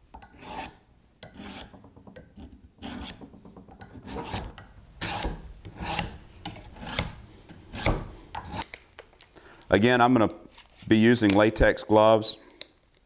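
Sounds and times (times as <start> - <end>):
knife scraping on honing steel: 0.2 - 8.7.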